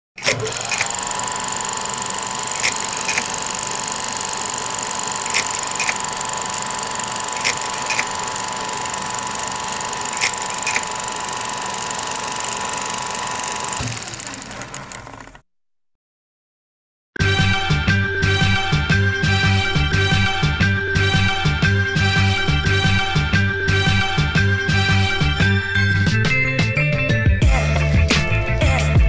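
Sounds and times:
projector clicks: 0.2 - 15.3
projector motor whine: 0.2 - 15.4.

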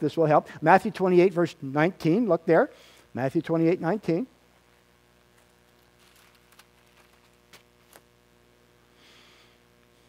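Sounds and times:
electrical hum: 0.0 - 10.0
pages being turned: 5.4 - 8.1.

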